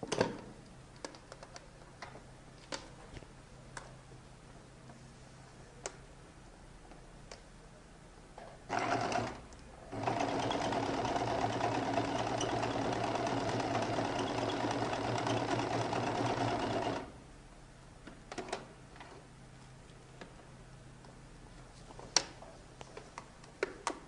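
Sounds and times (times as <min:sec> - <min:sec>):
electric sewing machine stitching: 0:08.7 - 0:17.2.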